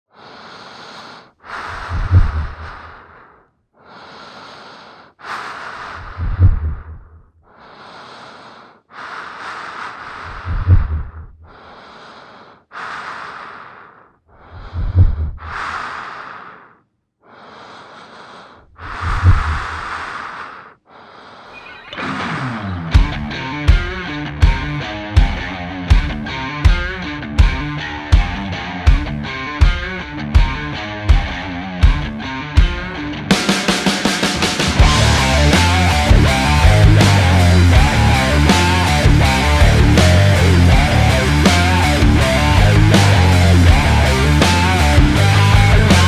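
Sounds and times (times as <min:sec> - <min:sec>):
slow heavy breathing: 0:00.1 - 0:46.0
deep low boom: 0:22.0 - 0:26.4, 0:34.4 - 0:46.0.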